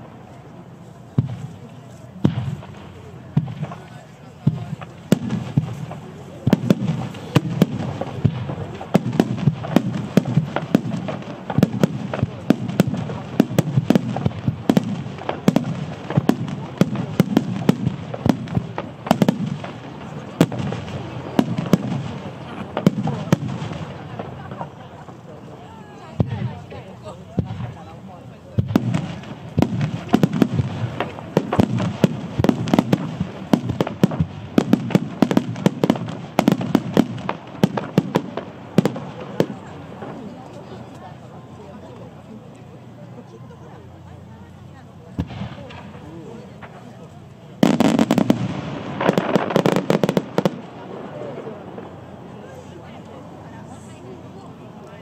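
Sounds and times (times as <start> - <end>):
fireworks bursting: 0.0 - 42.5, 44.2 - 55.0
continuous rumble: 0.0 - 55.0
firework shells bursting: 28.6 - 40.2, 47.6 - 52.0.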